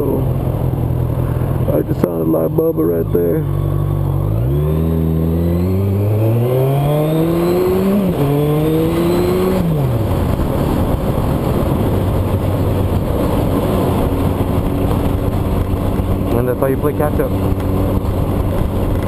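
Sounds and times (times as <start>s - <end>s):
motorcycle engine accelerating: 0.0s - 19.0s
wind rush on microphone: 5.7s - 19.0s.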